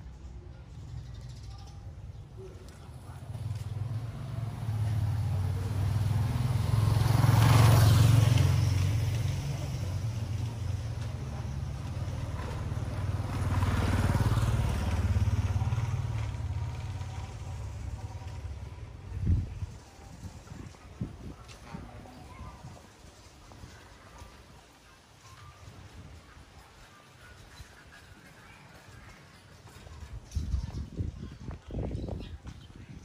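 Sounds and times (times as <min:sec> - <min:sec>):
low engine rumble: 0:00.0 - 0:24.1
vehicles passing: 0:00.0 - 0:33.0.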